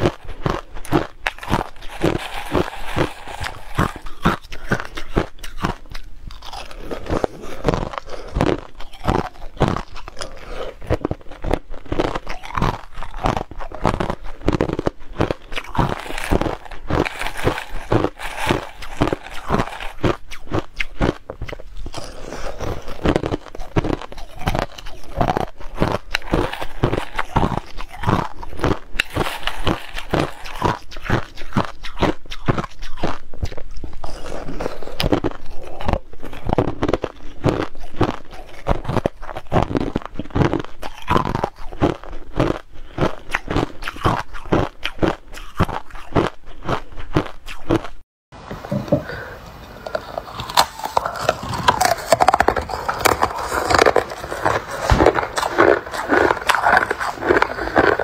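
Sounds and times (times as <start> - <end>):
chewing crushed ice: 0.0 - 48.0, 49.8 - 58.0.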